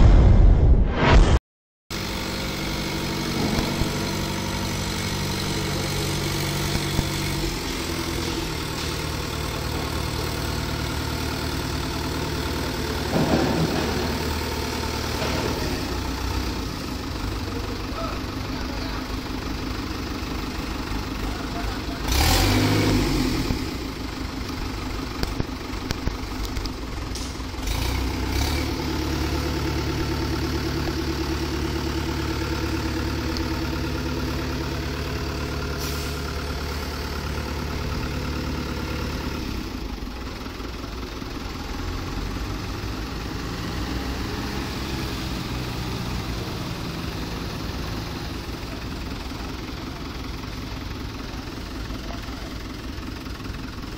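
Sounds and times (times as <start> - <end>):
loud burst of noise: 0.0 - 1.4
tractor diesel engine running: 1.9 - 53.9.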